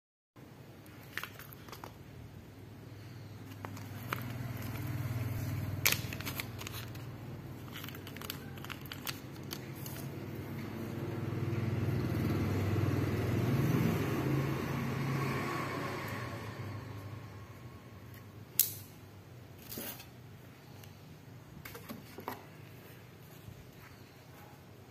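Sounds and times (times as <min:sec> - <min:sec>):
plastic packet crinkling: 0:05.8 - 0:10.1.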